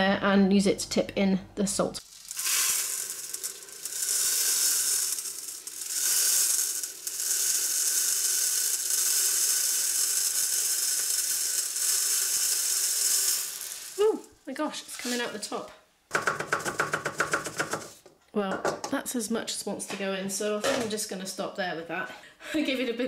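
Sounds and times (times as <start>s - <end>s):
salt grains pouring through funnel: 2.0s - 14.4s.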